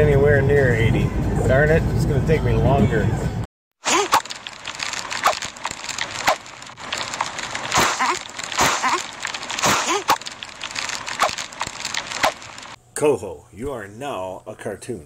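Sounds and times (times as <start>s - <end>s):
crackle and hiss: 3.9s - 12.8s.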